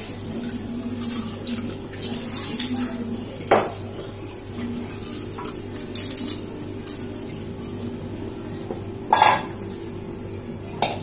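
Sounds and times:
metal utensils clinking on pot: 0:05.1 - 0:07.8, 0:09.1 - 0:09.7.

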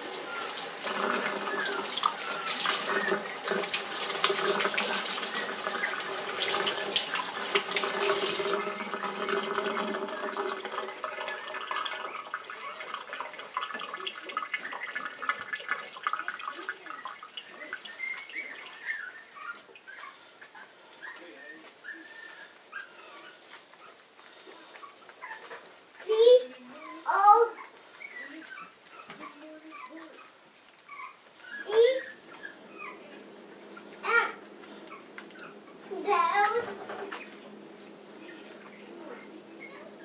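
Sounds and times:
faucet water running into sink: 0:00.0 - 0:17.5
puppy squeaking and whimpering: 0:00.2 - 0:37.6, 0:38.3 - 0:40.0.

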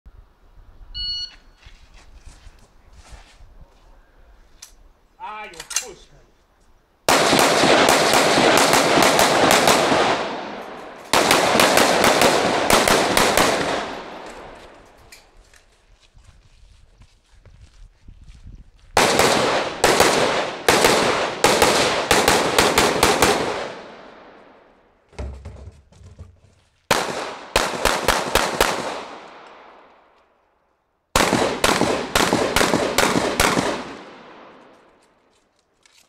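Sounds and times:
gunshots with echoing tail: 0:07.1 - 0:14.6, 0:19.0 - 0:24.5, 0:26.9 - 0:29.8, 0:31.2 - 0:34.6.

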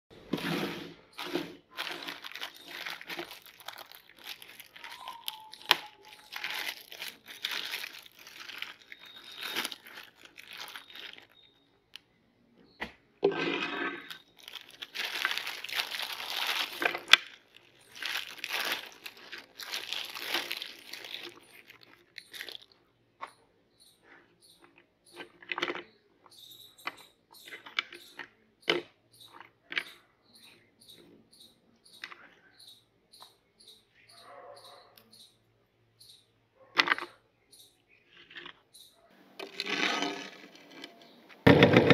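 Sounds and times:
plastic bag crinkling: 0:00.2 - 0:11.6, 0:13.9 - 0:22.8, 0:39.2 - 0:41.9.

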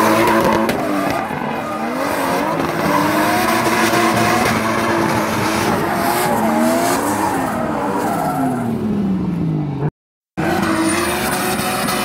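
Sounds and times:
tyres skidding: 0:00.0 - 0:12.0
car engine revving high: 0:10.4 - 0:12.0.

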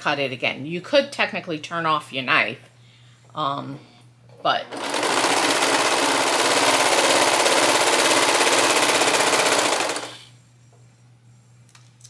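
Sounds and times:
serger sewing machine running: 0:04.6 - 0:10.3.

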